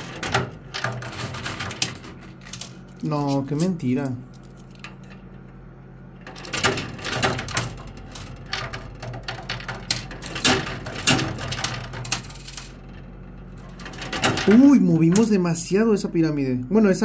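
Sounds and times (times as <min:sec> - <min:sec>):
low machine hum: 0:00.0 - 0:17.0
coins clinking and clattering: 0:06.3 - 0:12.8.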